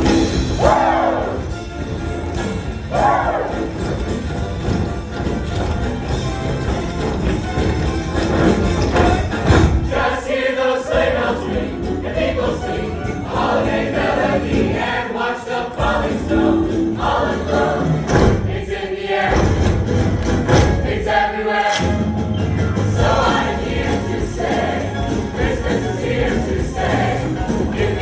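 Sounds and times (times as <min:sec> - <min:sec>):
choir singing in parts: 0:00.0 - 0:01.6, 0:02.9 - 0:03.8, 0:08.9 - 0:22.2, 0:22.8 - 0:28.0
instrumental accompaniment with beat: 0:10.9 - 0:28.0.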